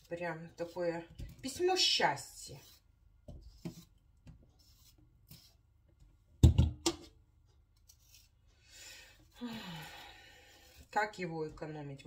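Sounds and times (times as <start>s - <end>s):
faint tapping and handling: 3.2s - 8.6s.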